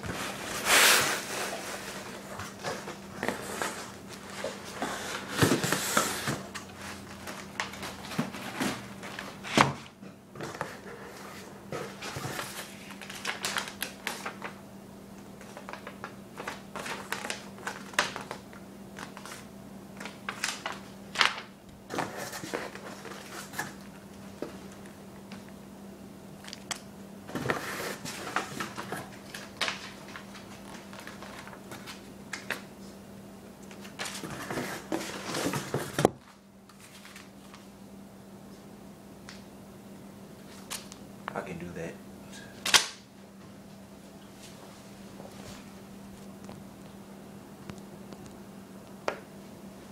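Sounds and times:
cardboard and paper rustling: 0.0s - 14.6s, 15.4s - 23.8s, 27.3s - 32.7s, 33.7s - 37.7s
steady low hum: 0.0s - 49.9s.

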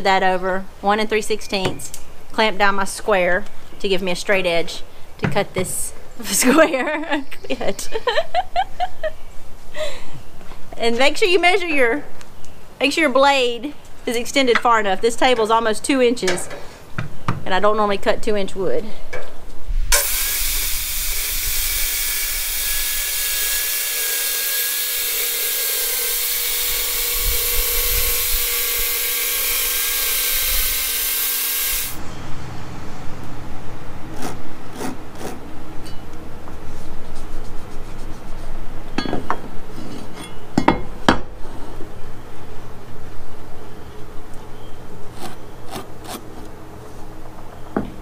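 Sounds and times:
circular saw cutting wood: 20.0s - 32.0s.

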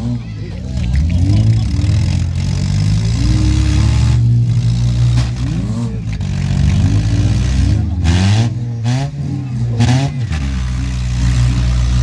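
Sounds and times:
car engines revving: 0.0s - 12.0s.

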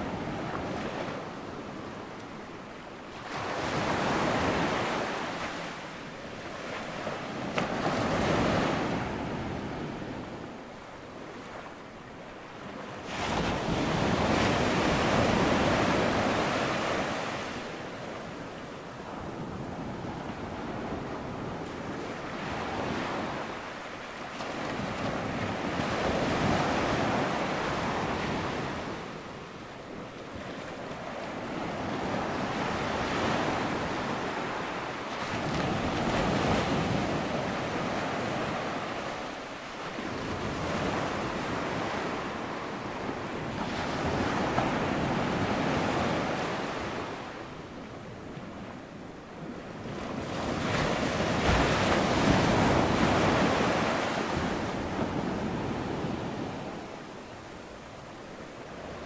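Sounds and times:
waves breaking on shore: 48.3s - 59.0s.

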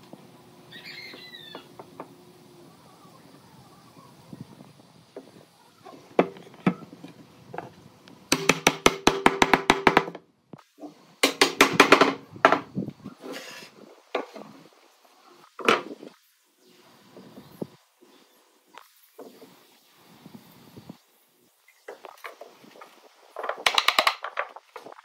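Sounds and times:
rapid sharp wood strikes: 8.3s - 10.2s, 11.2s - 12.6s, 23.4s - 24.6s.

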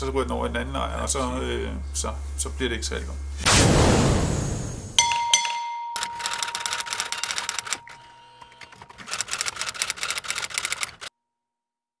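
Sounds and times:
typewriter keystrokes clacking: 6.0s - 11.1s.

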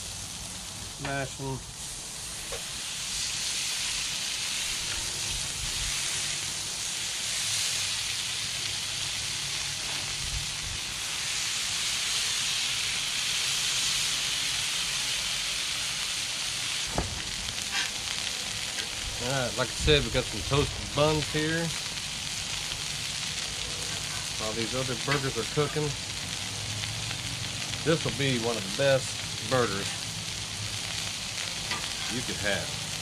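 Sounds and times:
meat sizzling on a griddle: 0.0s - 33.0s
short knock: 16.9s - 17.3s.

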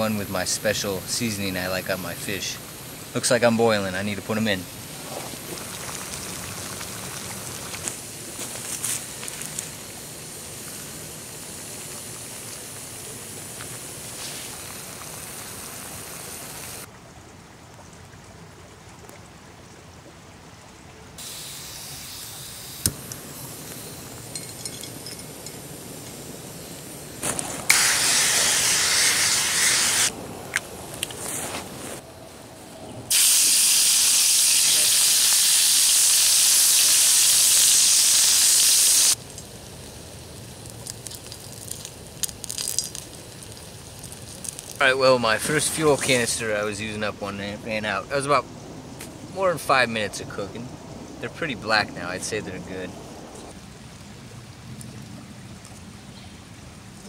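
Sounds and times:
oil sizzling and crackling: 0.0s - 16.9s, 21.2s - 30.2s, 33.1s - 46.5s
aerosol spray hissing: 8.4s - 16.9s, 21.2s - 24.2s, 27.6s - 30.1s, 33.1s - 39.2s
gas stove burner hiss: 21.2s - 30.1s, 33.1s - 42.0s.

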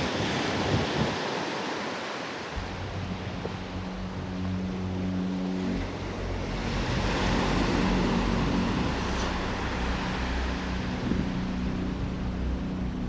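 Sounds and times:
surf washing onto sand: 0.0s - 12.1s
low engine hum: 2.6s - 13.0s.

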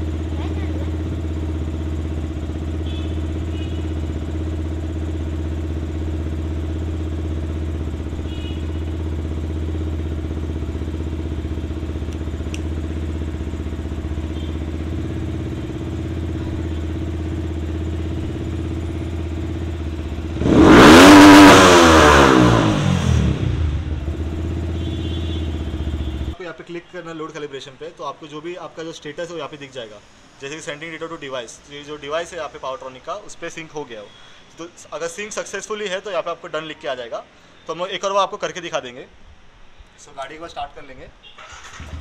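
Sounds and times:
motorcycle engine idling and revving: 0.0s - 26.4s, 41.4s - 42.0s.

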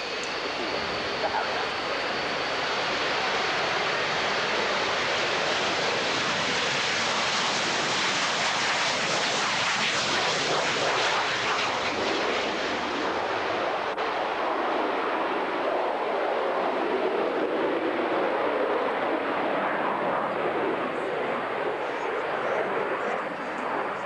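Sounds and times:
jet engine roar: 0.0s - 24.0s.

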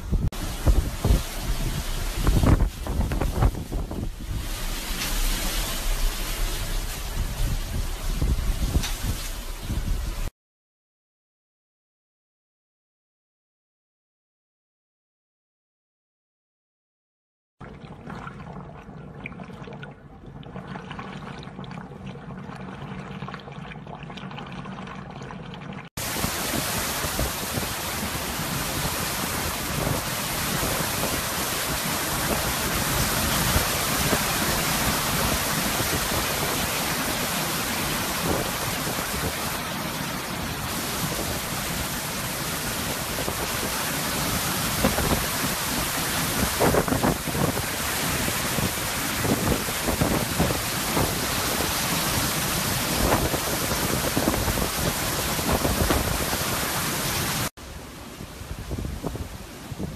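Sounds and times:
storm wind and rushing water: 0.0s - 10.3s, 25.9s - 59.9s
low steady hum: 4.0s - 10.3s.

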